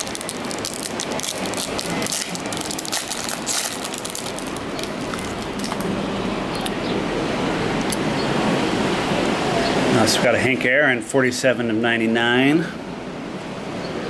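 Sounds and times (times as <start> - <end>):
foil wrapper crinkling: 0.0 - 6.0.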